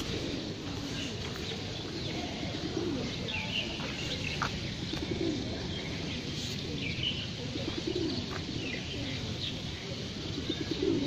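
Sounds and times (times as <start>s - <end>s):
background hiss: 0.0s - 11.0s
pigeons cooing: 0.0s - 11.0s.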